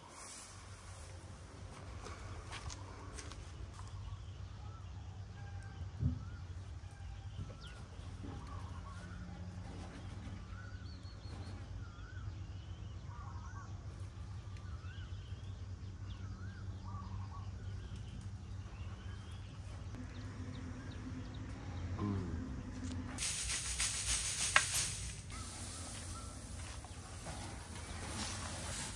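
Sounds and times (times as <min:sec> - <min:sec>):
birds chirping: 0:00.0 - 0:28.9
low outdoor rumble: 0:00.0 - 0:28.9.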